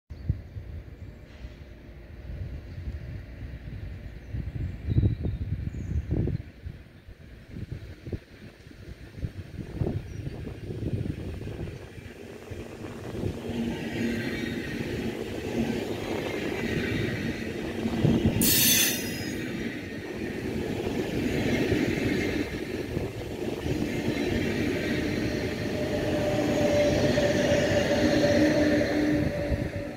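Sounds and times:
train wheels rumbling on rail: 0.3s - 29.9s
locomotive humming: 10.9s - 29.9s
loud high-pitched burst: 18.4s - 19.4s.

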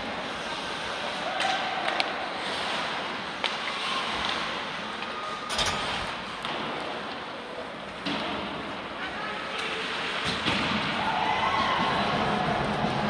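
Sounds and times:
skates scraping on ice: 0.0s - 5.4s
hockey sticks and puck clacking: 0.0s - 5.5s, 6.2s - 13.0s
murmur of spectators: 0.0s - 13.0s.

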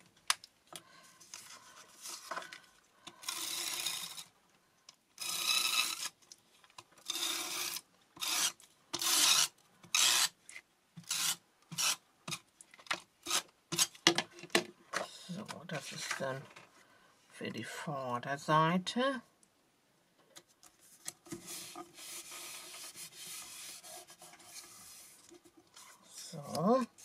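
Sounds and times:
tape runner rasping on paper: 7.0s - 10.4s.

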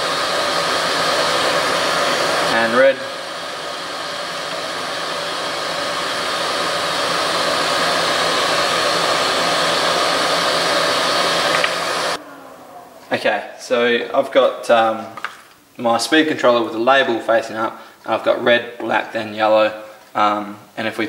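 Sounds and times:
extractor fan rushing air: 0.0s - 12.6s.

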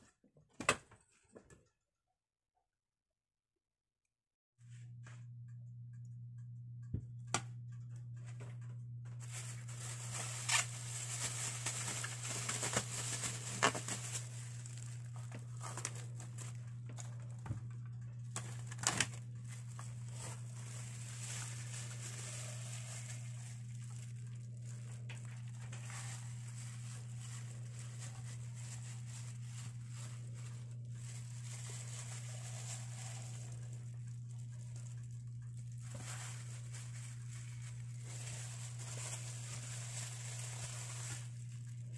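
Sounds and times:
steady low hum: 4.7s - 41.9s
plastic film and glove crinkling: 8.4s - 41.9s.

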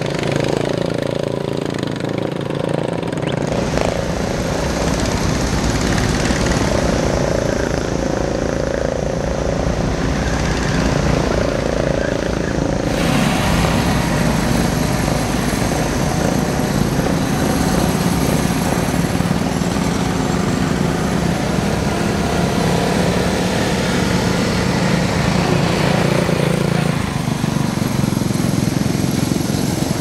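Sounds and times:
small car engines droning past: 0.0s - 30.0s.

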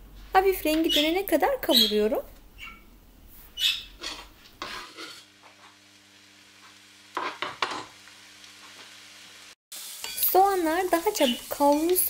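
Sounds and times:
onions sizzling in oil: 4.0s - 12.0s.

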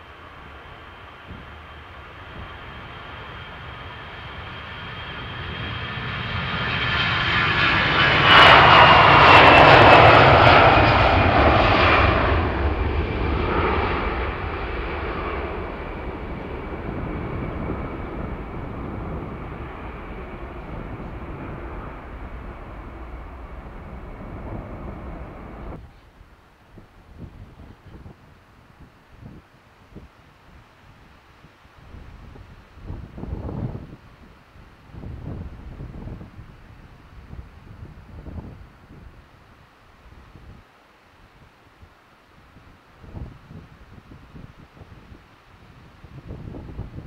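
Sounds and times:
jet airliner taking off: 0.0s - 26.3s.

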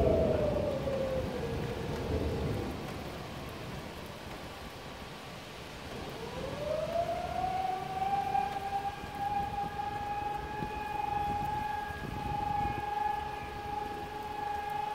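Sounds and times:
rain and wind of thunderstorm: 0.0s - 14.9s.

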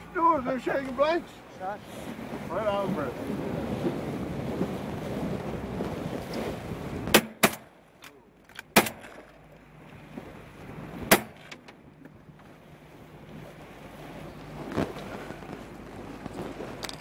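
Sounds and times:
boat noise: 0.0s - 17.0s
wind: 0.0s - 17.0s
shotgun shots: 7.1s - 7.7s, 8.7s - 9.2s, 11.1s - 11.5s.

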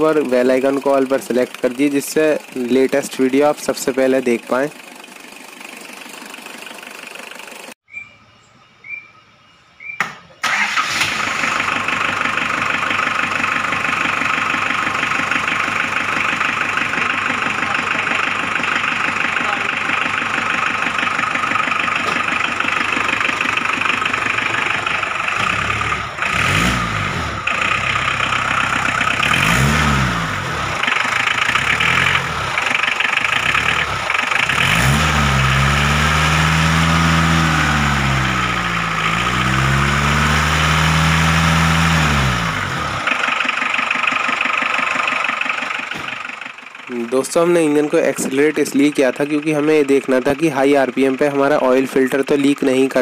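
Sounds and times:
diesel engine idling and revving: 0.0s - 8.0s, 9.9s - 53.0s.

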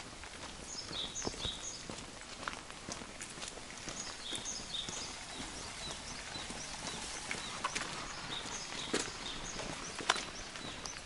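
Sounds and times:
footsteps on wet pavement: 0.0s - 11.0s
bird chirping: 0.6s - 2.0s, 3.9s - 11.0s
steady wet hiss: 3.7s - 11.0s.

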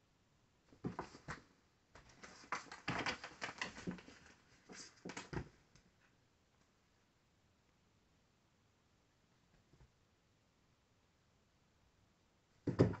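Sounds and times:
dull thump: 12.7s - 13.0s.

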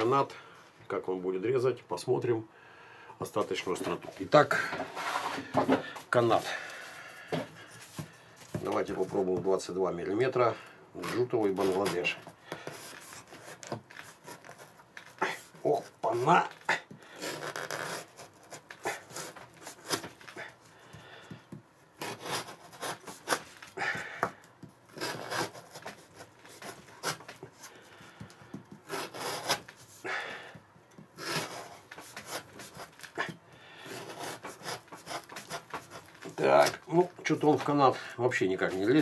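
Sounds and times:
knife blade sawing rope: 22.0s - 23.9s, 24.9s - 27.3s, 28.8s - 29.7s, 31.2s - 33.1s, 33.8s - 36.7s.

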